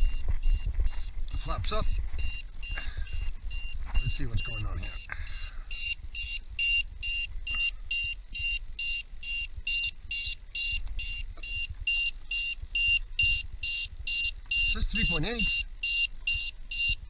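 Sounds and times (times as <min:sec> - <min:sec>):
high-pitched alarm beeps: 0:00.0 - 0:17.0.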